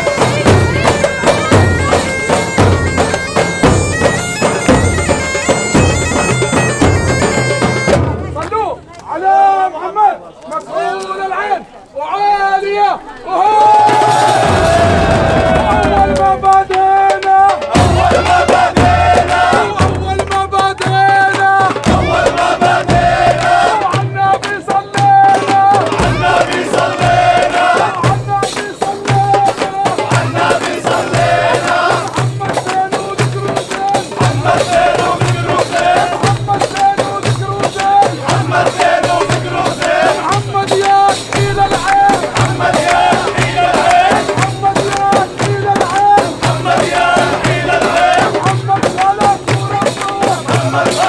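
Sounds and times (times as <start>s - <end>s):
large drums beating: 0.0s - 9.4s, 13.4s - 51.0s.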